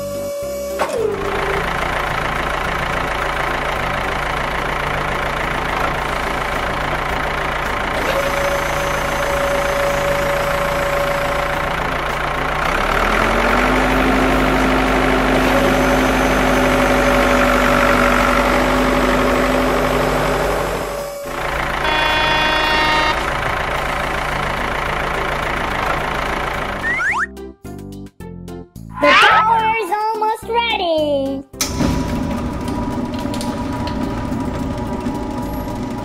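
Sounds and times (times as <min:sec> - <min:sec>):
heavy vehicle engine running: 0:00.0 - 0:27.3, 0:31.6 - 0:36.0.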